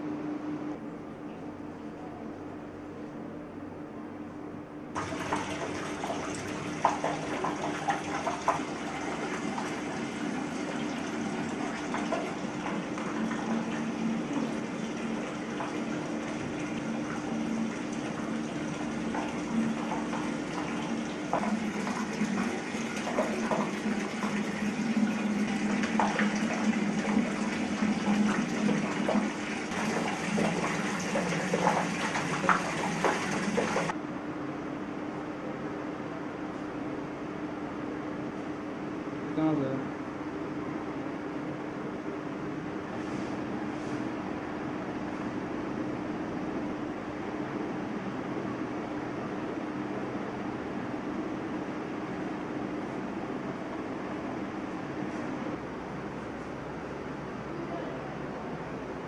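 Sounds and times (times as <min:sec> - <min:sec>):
water splashing into bucket: 0:05.0 - 0:33.9.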